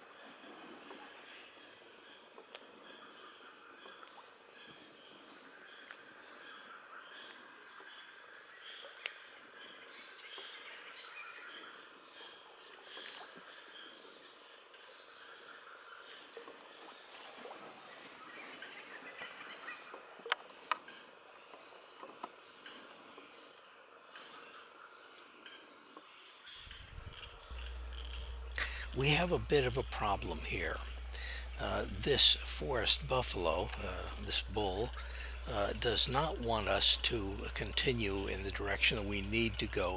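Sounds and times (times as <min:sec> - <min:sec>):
insect chirps: 0:00.0 - 0:39.9
insect high-pitched drone: 0:00.0 - 0:39.9.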